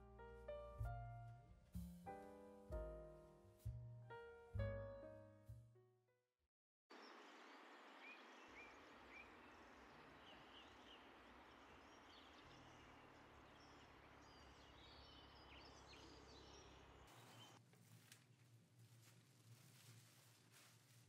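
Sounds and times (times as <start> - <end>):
small birds chirping: 6.9 - 17.6.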